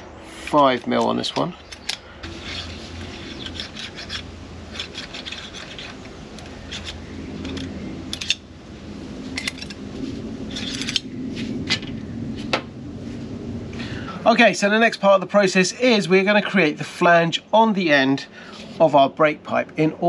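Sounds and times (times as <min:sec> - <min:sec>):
metal pipe scraping through tool: 0:01.8 - 0:08.4.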